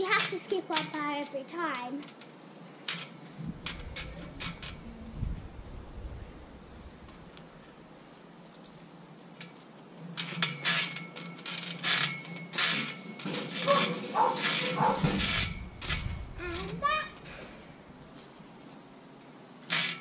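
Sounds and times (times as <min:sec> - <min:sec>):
metal bars clinking: 0:02.0 - 0:05.0, 0:09.4 - 0:17.4
tree branches rustling: 0:02.6 - 0:09.4, 0:12.8 - 0:19.0.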